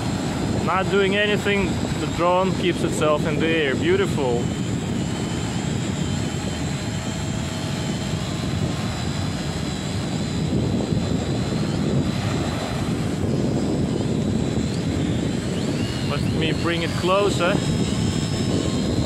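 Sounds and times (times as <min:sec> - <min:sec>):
drone propellers whining: 0:00.0 - 0:19.0
wind rumbling on microphone: 0:00.0 - 0:19.0.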